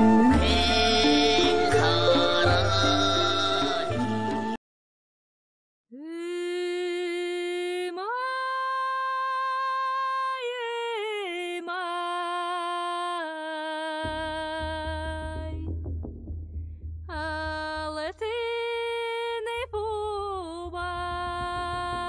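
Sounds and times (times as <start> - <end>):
solo voice singing held notes: 0.0 - 4.2.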